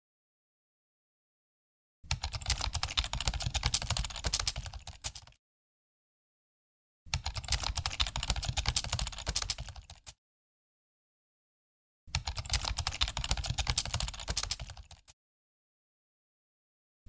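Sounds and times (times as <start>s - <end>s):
rapid keyboard keystrokes: 2.1s - 5.4s, 7.2s - 10.2s, 12.1s - 15.2s.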